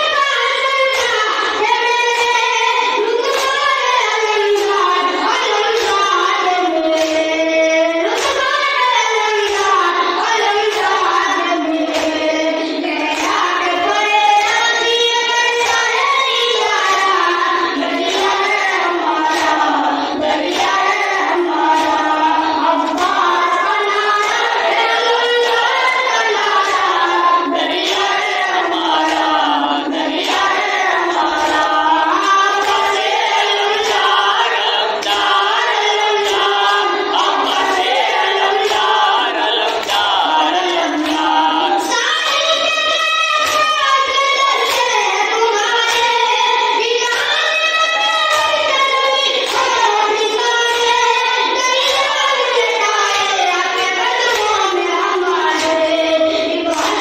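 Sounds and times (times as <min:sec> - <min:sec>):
boy chanting a lament: 0:00.0 - 0:57.0
men's voices chanting: 0:24.1 - 0:42.0.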